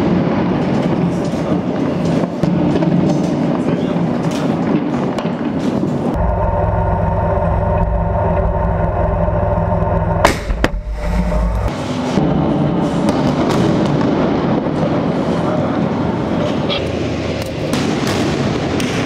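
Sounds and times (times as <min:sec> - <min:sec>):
outdoor rushing noise: 0:00.0 - 0:19.0
tank engine humming: 0:06.2 - 0:12.8
sharp crack: 0:09.9 - 0:12.4, 0:17.4 - 0:19.0.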